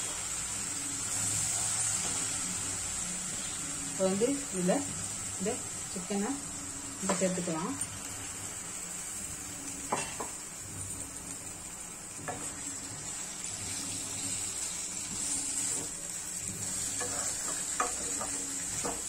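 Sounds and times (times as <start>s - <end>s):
chicken sizzling in oil: 0.0s - 19.0s
spatula knocking and scraping pan: 17.0s - 19.0s.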